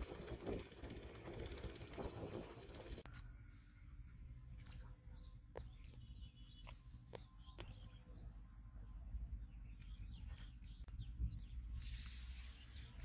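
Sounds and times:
birds chirping: 4.7 - 13.0.

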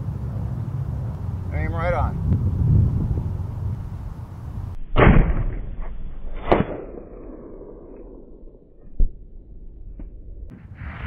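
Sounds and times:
bullet striking target: 4.9 - 8.4
rifle shot echoing: 4.9 - 8.7.

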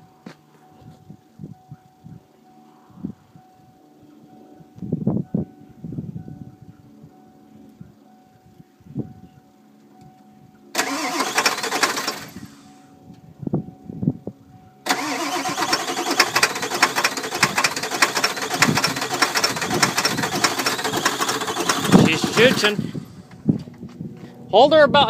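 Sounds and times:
diesel engine cranking on starter: 10.8 - 12.8, 14.9 - 23.4.

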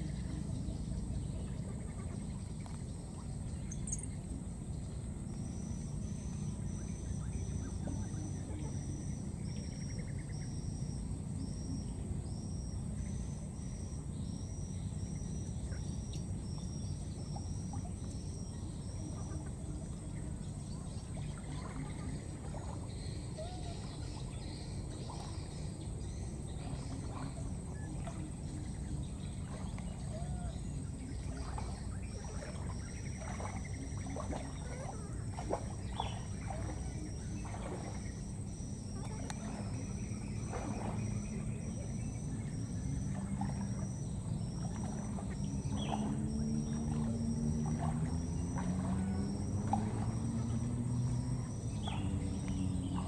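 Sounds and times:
steady low rumble: 0.0 - 53.0
faint calls: 12.6 - 53.0.

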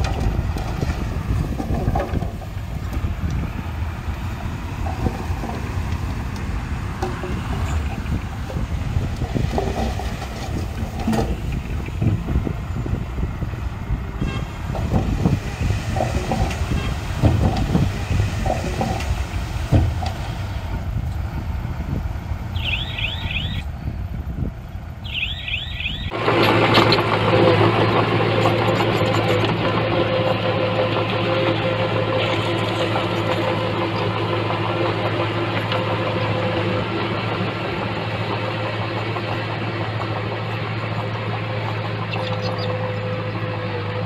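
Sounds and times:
knocks and clanks: 0.0 - 3.4, 4.4 - 12.5, 14.2 - 20.5
earthmoving machinery engine: 0.0 - 44.0.

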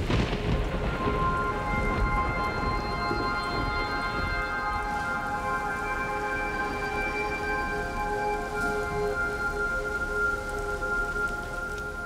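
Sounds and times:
rain falling: 0.0 - 12.0
soft music of held chords: 0.1 - 12.0.

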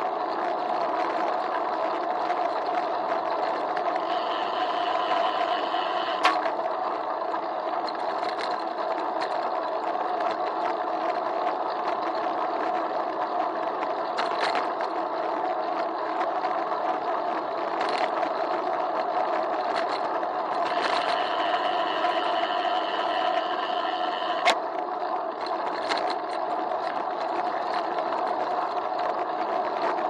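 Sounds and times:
muffled bicycle rolling rumble: 0.0 - 30.0
sharp clicks from bumps: 6.2 - 6.6, 14.2 - 14.9, 25.4 - 28.2.

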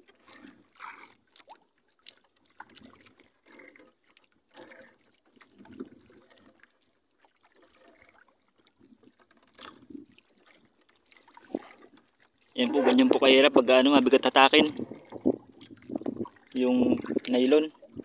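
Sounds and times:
water lapping against boat: 0.0 - 18.0.

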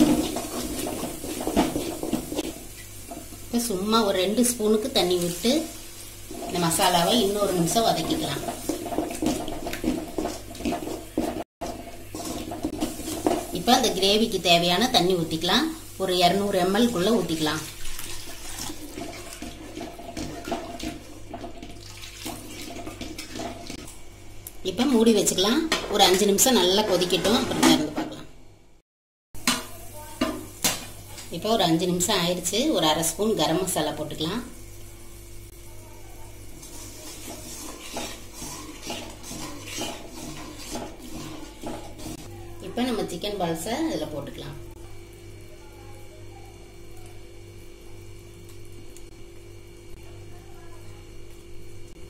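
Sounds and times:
spoon stirring thick gravy: 7.9 - 13.6, 18.0 - 23.8, 36.6 - 42.3
water pouring into pan: 16.8 - 23.8
spoon scraping metal pan: 25.7 - 28.1, 36.6 - 42.3.

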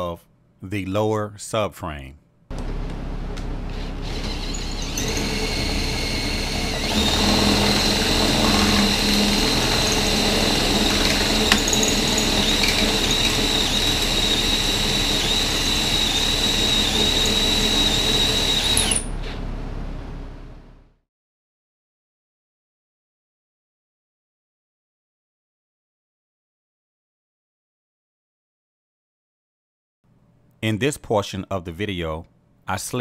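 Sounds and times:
cordless drill whining: 3.7 - 19.4.

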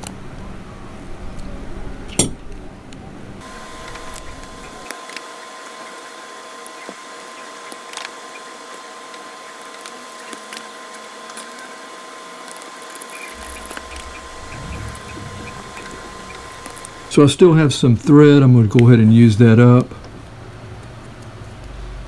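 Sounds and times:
steady background hiss: 12.9 - 20.0.

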